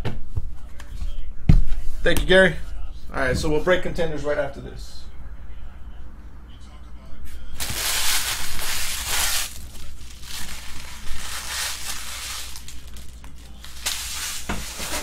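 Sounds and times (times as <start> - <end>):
foil wrappers crinkling: 7.6 - 15.0.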